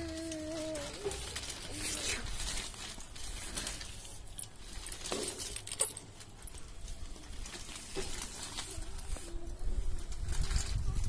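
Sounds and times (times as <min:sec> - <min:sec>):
plastic toys clicking and rattling: 0:00.0 - 0:09.0.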